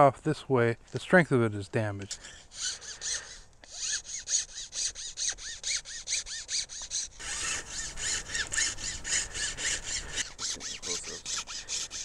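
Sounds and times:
metal file rasping on cane: 2.1s - 12.0s.

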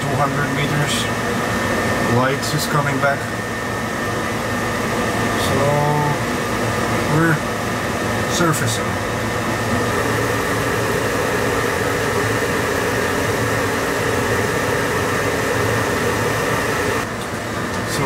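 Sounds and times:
machinery whirring hiss: 0.0s - 18.0s.

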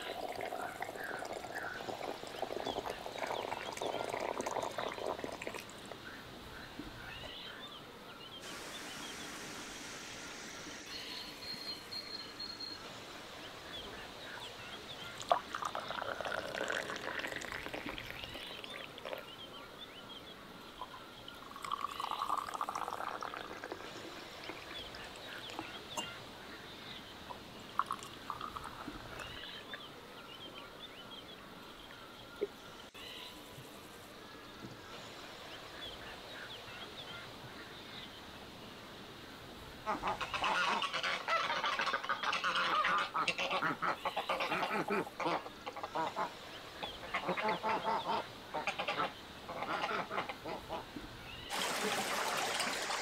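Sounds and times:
tea pouring into glass: 0.0s - 6.0s, 15.2s - 19.2s, 21.3s - 25.6s, 27.8s - 29.3s, 51.5s - 53.0s
water pouring into teapot: 0.0s - 6.0s, 15.2s - 19.3s, 21.3s - 26.1s, 27.7s - 29.3s, 51.5s - 53.0s.

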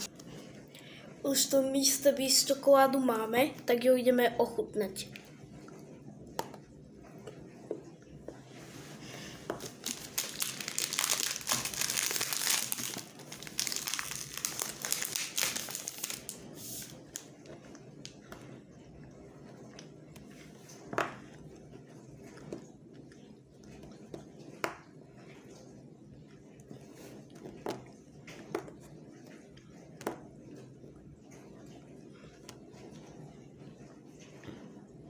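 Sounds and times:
wrapper crinkling: 9.6s - 17.3s.

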